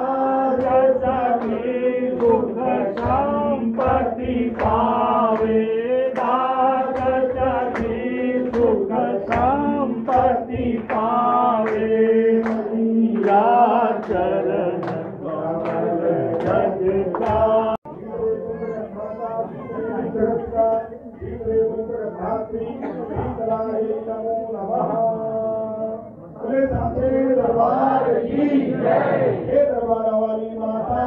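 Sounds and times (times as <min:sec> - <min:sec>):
group singing a hymn: 0:00.0 - 0:18.3, 0:19.4 - 0:31.0
sharp percussive beat: 0:00.4 - 0:17.8.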